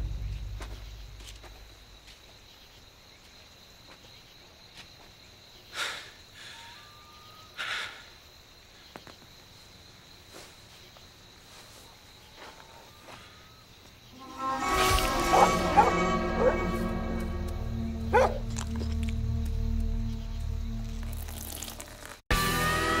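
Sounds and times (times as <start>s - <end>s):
faint high-pitched tone: 14.1s - 18.2s.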